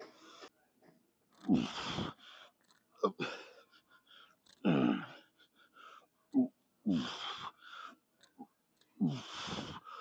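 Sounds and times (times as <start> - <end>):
quiet breaths: 0.0 - 10.0
man grunting and exhaling: 1.4 - 2.2, 3.0 - 3.6, 4.5 - 5.4, 6.3 - 7.6, 9.0 - 9.9.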